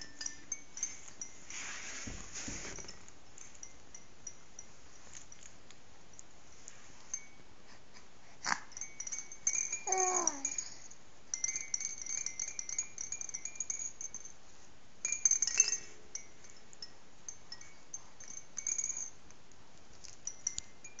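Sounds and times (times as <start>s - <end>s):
baby toy jingling: 8.4s - 14.3s, 17.4s - 19.2s.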